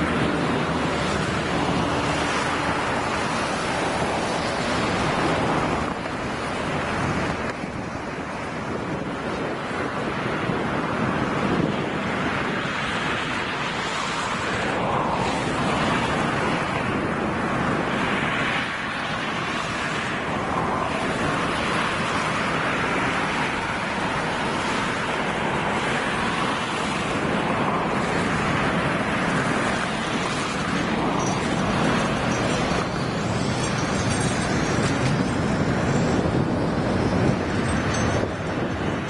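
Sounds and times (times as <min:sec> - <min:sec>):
freight train rumbling over bridge: 0:00.0 - 0:39.0.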